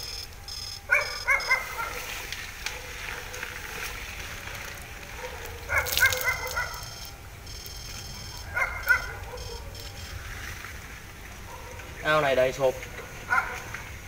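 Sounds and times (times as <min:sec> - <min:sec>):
low background noise: 0:00.0 - 0:14.0
dog barking and yelping: 0:00.9 - 0:02.1, 0:05.1 - 0:07.0, 0:08.2 - 0:10.0, 0:11.5 - 0:12.0, 0:13.0 - 0:13.7.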